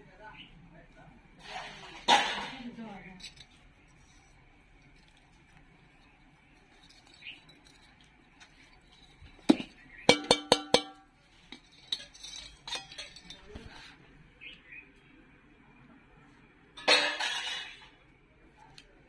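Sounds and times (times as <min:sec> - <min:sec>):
light metal clatter: 0:01.4 - 0:14.1, 0:16.8 - 0:18.0
bowl knocking on metal pot: 0:09.5 - 0:11.1.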